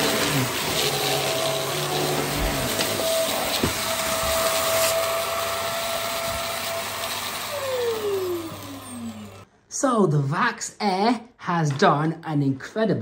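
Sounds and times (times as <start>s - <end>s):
vacuum cleaner whining on carpet: 0.0s - 9.5s.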